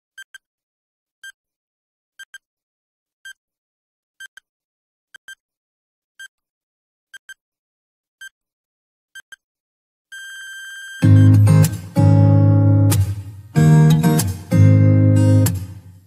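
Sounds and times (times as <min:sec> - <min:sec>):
high electronic timer beeps: 0:10.2 - 0:11.7.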